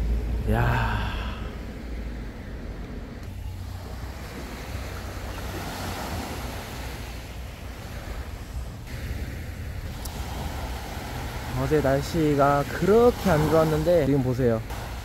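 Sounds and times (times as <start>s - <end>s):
wind buffeting microphone: 1.4s - 15.0s
sea waves washing on beach: 3.3s - 15.0s.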